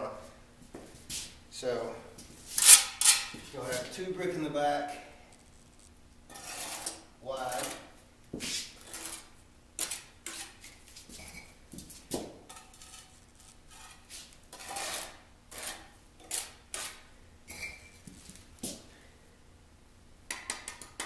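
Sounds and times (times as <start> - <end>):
trowel scraping mortar: 6.3 - 7.9, 8.5 - 11.5, 12.5 - 17.6.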